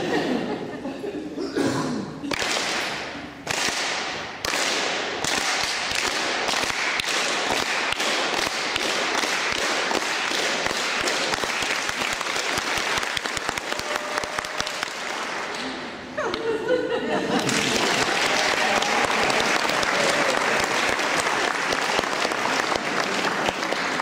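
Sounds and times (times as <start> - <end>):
audience applauding: 5.4 - 15.9, 17.3 - 24.0.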